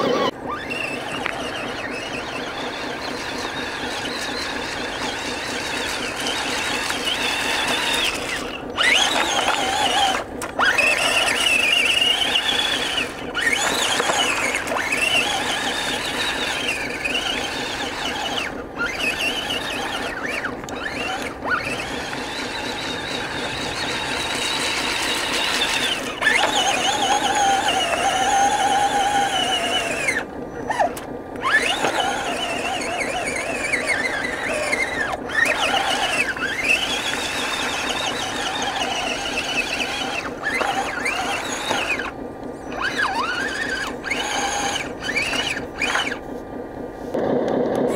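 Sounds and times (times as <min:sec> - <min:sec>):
electric motor and gears whining: 0:00.0 - 0:47.9.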